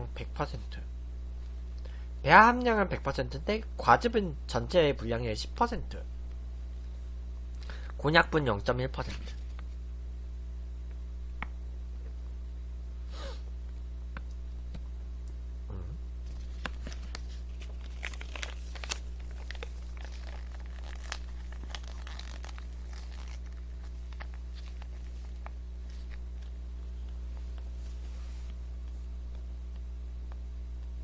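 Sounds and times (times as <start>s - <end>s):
low hum: 9.2s - 31.0s
plastic pouch crinkling: 16.3s - 26.2s.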